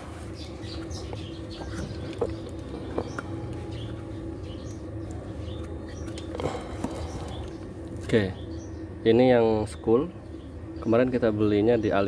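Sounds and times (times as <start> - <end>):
faint bird calls: 0.0 - 9.0
steady low hum: 0.0 - 12.0.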